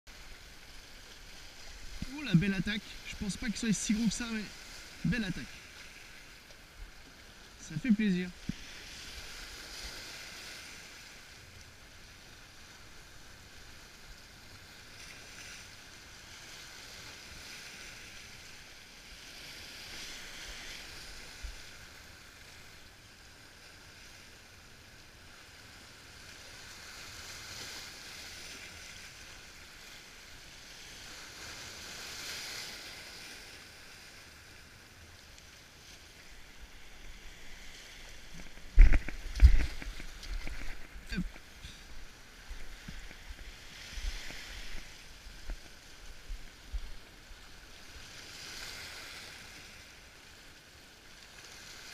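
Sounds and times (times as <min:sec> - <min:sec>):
small waves washing over rocks: 0:00.1 - 0:51.9
footsteps on rocks: 0:38.1 - 0:45.8.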